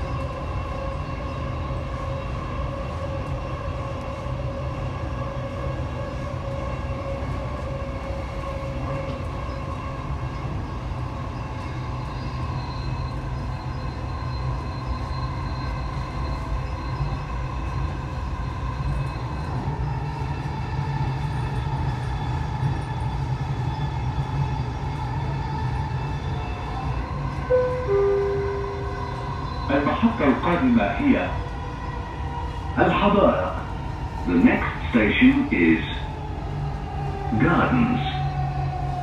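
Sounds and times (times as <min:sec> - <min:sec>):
train rumble inside car: 0:00.0 - 0:31.8
thin whining tones: 0:27.4 - 0:30.6.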